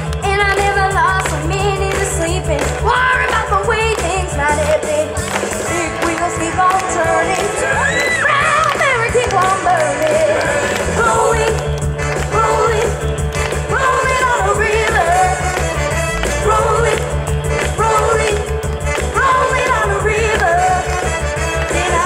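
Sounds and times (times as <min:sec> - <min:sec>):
backing music with pulsing bass: 0:00.0 - 0:22.0
girl singing into microphone: 0:00.2 - 0:05.1.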